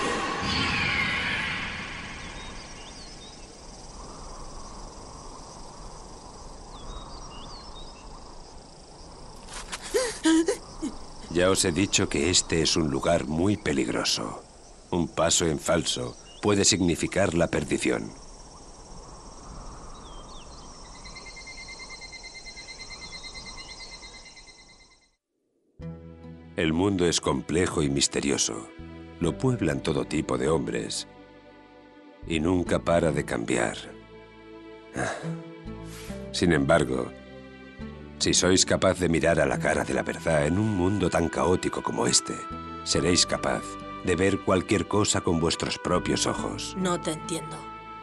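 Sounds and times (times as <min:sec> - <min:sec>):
insect high shrill: 0:00.0 - 0:11.6, 0:18.0 - 0:25.1, 0:35.8 - 0:36.3
steady hiss: 0:00.0 - 0:22.0
short insect chirps: 0:00.2 - 0:10.0, 0:16.0 - 0:25.2
insect pulsing trill: 0:00.2 - 0:25.1.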